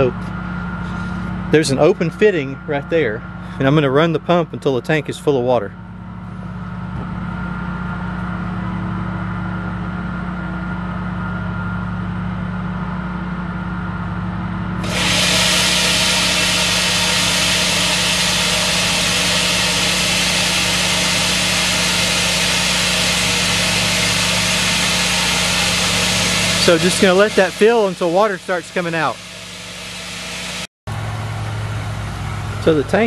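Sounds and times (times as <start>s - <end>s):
rushing hiss of water: 14.8s - 29.2s
pressure washer pump running: 14.8s - 33.0s.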